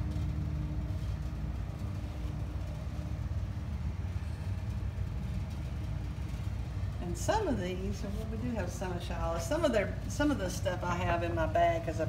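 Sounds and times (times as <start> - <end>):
faint constant tone: 0.0 - 12.0
machine hum and rumble: 0.0 - 12.0.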